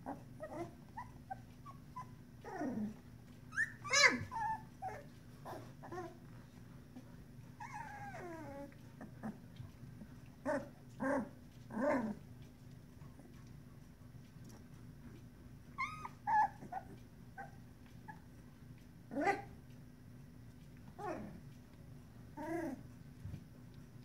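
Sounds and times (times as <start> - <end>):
puppies whimpering and squealing: 0.0 - 6.3, 7.5 - 9.4, 15.7 - 18.5, 22.3 - 22.9.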